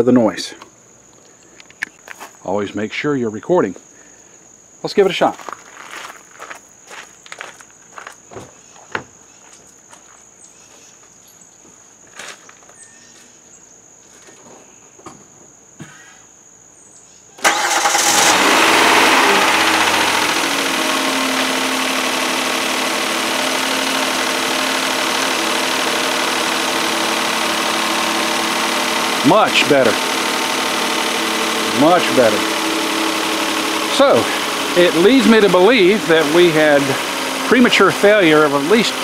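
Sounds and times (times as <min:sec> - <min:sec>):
car engine starting and idling: 0:17.4 - 0:39.0.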